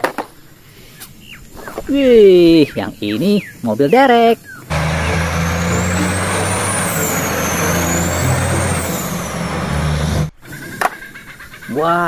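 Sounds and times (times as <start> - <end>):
high whistle rising and falling: 4.7 - 10.3
truck engine drone: 4.7 - 10.3
road noise: 4.7 - 10.4.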